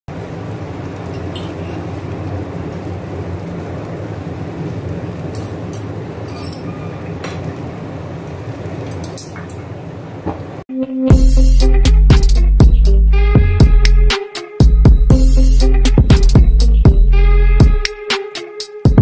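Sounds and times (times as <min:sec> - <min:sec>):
metal utensils clicking on wok: 0:05.3 - 0:07.5, 0:08.9 - 0:09.6.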